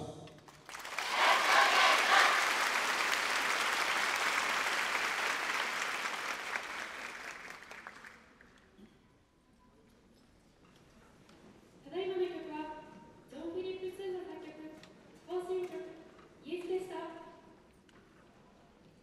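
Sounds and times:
audience applauding: 0.5s - 8.5s.

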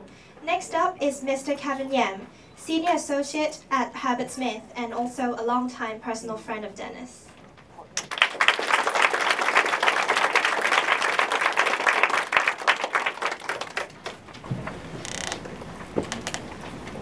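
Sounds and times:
audience applauding: 8.0s - 14.2s.

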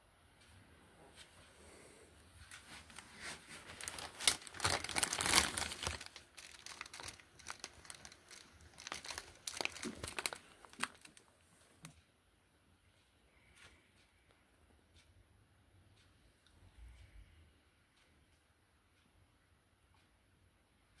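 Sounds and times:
crinkling and rustling handling: 1.1s - 12.0s
small sharp crackles and clicks: 2.4s - 12.1s.

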